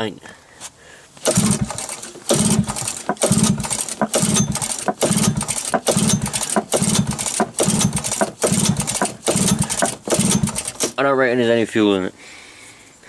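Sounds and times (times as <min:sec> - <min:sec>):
small engine being cranked: 0:01.2 - 0:11.0.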